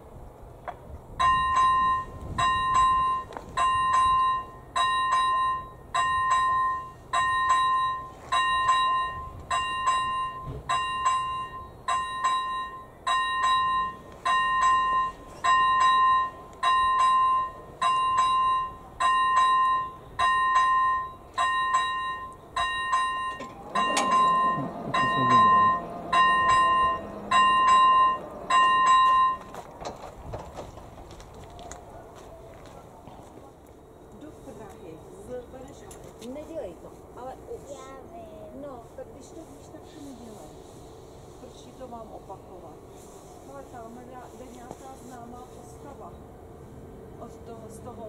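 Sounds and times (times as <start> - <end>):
electronic crossing bell ringing: 1.2 - 29.6.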